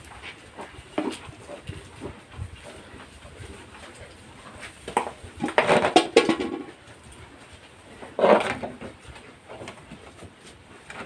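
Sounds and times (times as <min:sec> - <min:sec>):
metal bucket clattering: 0:05.0 - 0:06.8.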